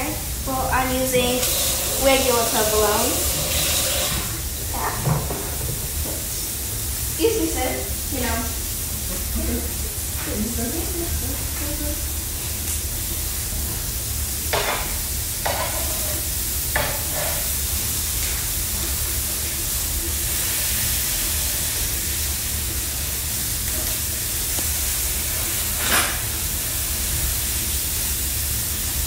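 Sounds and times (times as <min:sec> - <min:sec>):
meat sizzling on a griddle: 0:00.0 - 0:29.0
metal spatula scraping: 0:16.8 - 0:17.5.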